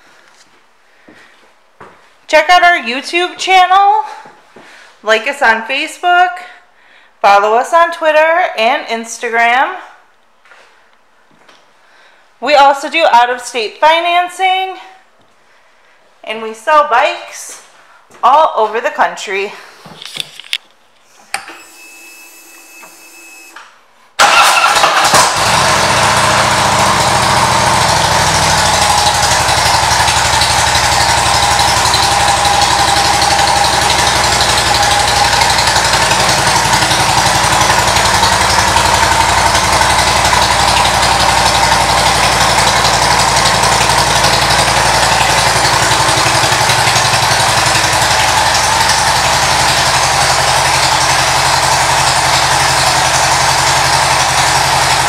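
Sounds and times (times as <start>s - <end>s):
motorcycle engine starting and idling: 24.2s - 55.0s.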